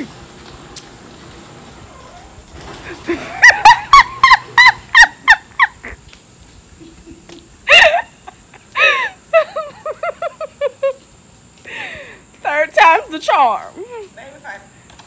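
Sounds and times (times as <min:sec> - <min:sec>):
woman laughing: 0:02.8 - 0:06.0, 0:06.7 - 0:11.1.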